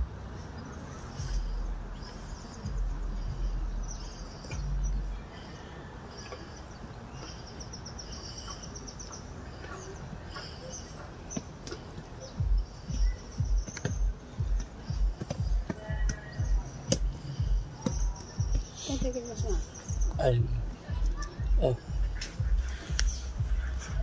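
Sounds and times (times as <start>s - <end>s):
low rumbling on microphone: 1.2s - 5.4s, 12.1s - 24.0s
high-pitched chirps and trills: 12.1s - 24.0s.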